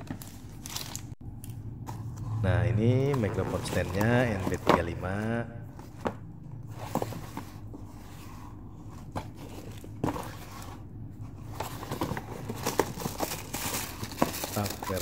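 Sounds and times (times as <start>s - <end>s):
cardboard crinkling: 9.2s - 15.0s.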